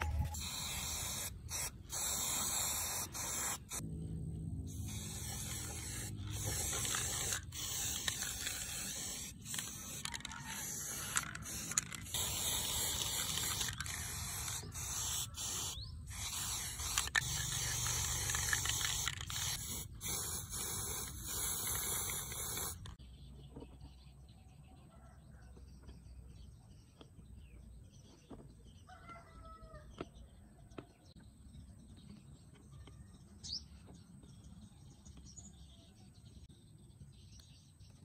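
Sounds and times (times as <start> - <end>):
spray paint can hissing: 0.0 - 3.8, 4.7 - 23.0.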